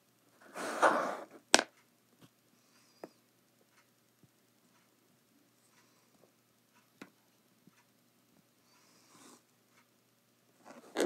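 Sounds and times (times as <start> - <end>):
faint ticks: 1.7 - 10.0.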